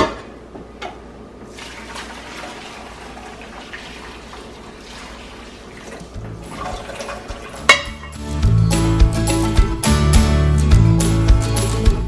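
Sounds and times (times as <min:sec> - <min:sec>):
hot water pouring and splashing: 0:01.5 - 0:07.8.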